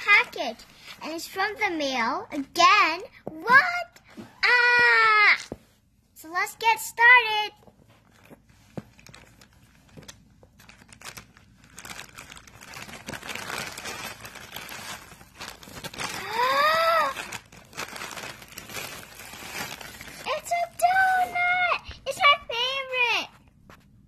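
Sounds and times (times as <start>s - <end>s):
plastic bag crinkling and tearing: 8.9s - 21.7s.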